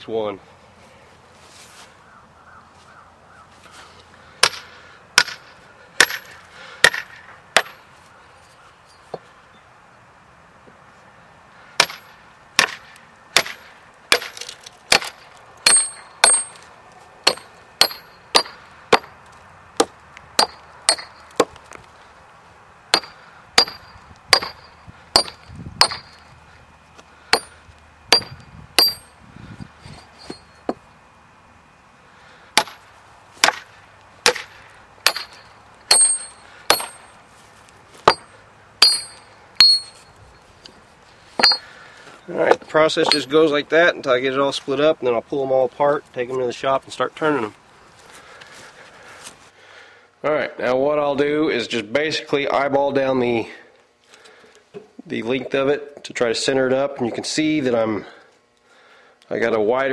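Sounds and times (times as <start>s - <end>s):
hammer striking splitting wedge: 4.4s - 5.4s, 6.0s - 7.8s, 11.8s - 12.8s, 13.4s - 16.6s, 17.2s - 19.2s, 19.8s - 21.6s, 22.9s - 26.2s, 27.3s - 29.1s, 32.6s - 32.8s, 33.4s - 37.1s, 38.0s - 40.0s, 41.4s - 41.7s, 42.5s - 43.3s.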